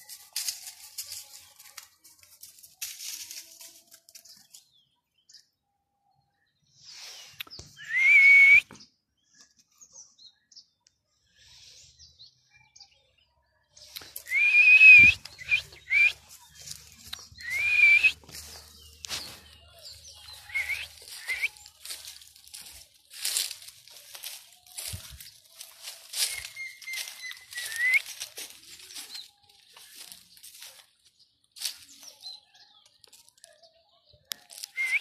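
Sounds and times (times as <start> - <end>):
rustling in dry leaves: 0.0 - 4.6, 15.0 - 32.4, 34.3 - 35.0
person whistling: 7.8 - 8.7, 14.2 - 16.1, 17.4 - 18.2, 20.5 - 21.6, 27.4 - 28.1, 34.7 - 35.0.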